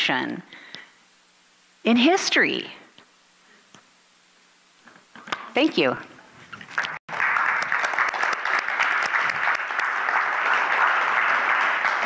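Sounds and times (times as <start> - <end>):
crowd applauding: 6.7 - 12.0.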